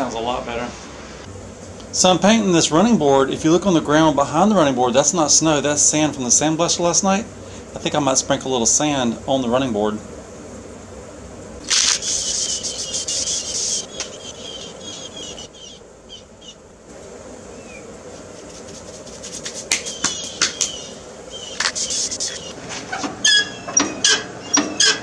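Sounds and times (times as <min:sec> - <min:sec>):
spray paint can hissing: 0:11.6 - 0:14.6, 0:18.2 - 0:20.8, 0:21.5 - 0:22.6.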